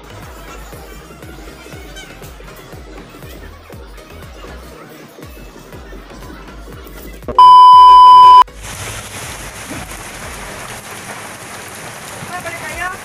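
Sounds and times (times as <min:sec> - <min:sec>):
loud electronic beep: 0:07.3 - 0:08.4
rain on a wet street: 0:08.5 - 0:13.0.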